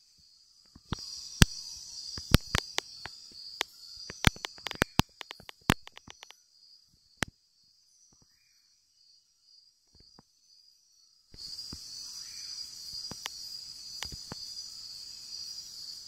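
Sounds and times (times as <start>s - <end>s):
insect chorus buzzing: 0.1s - 16.0s
sharp clicks: 0.8s - 1.6s, 2.2s - 6.3s, 13.0s - 13.4s, 14.0s - 14.4s.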